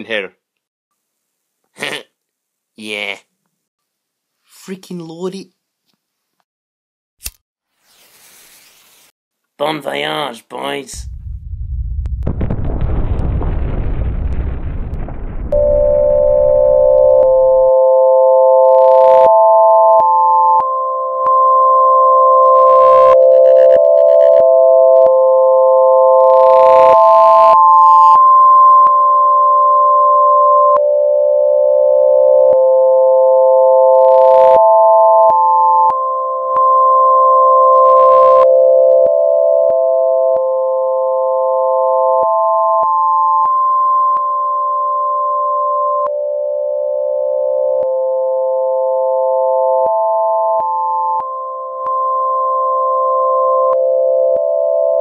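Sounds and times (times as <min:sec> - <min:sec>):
low rumble: 0:11.0 - 0:17.6.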